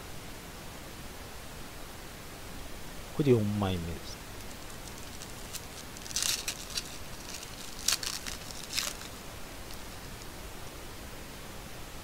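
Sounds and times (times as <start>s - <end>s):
background hiss: 0.0s - 12.0s
foil wrapper crinkling and tearing: 4.3s - 10.3s.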